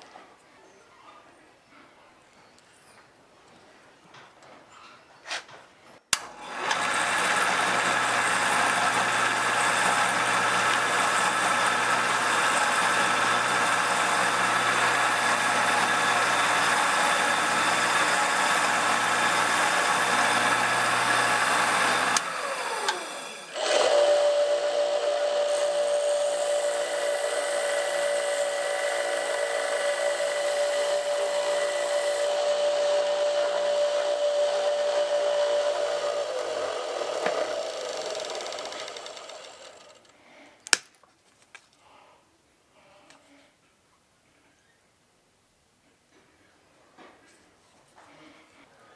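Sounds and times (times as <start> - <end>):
power drill whining: 6.2 - 40.2.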